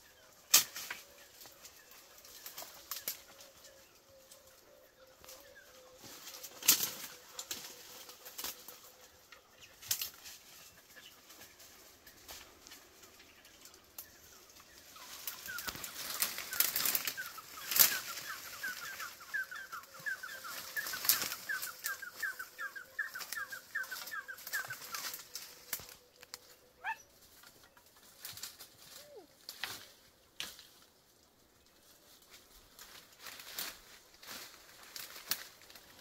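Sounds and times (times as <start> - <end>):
leaves and branches rustling: 0.0 - 36.0
twigs snapping: 6.3 - 7.7, 9.8 - 10.4, 15.0 - 22.3, 23.0 - 26.5, 28.2 - 30.8, 32.8 - 36.0.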